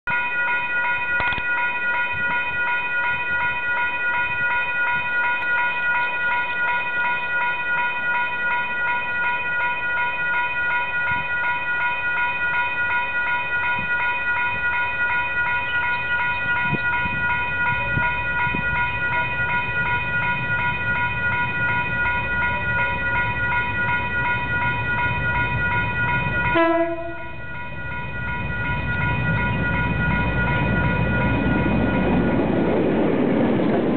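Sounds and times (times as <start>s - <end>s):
locomotive rumble: 12.8s - 33.9s
diesel locomotive horn: 26.5s - 27.5s.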